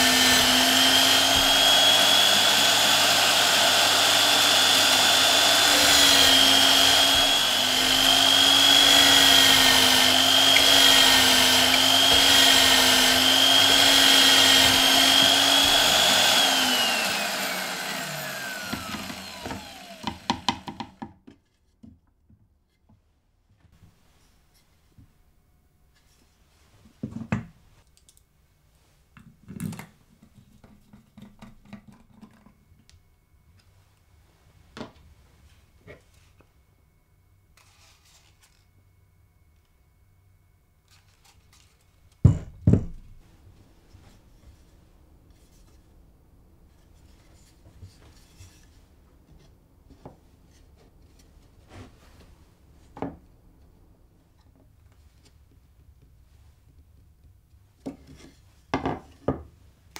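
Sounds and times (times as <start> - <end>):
wood rubbing on wood: 0.0 - 21.0
screwdriver clicking and creaking: 5.4 - 17.3.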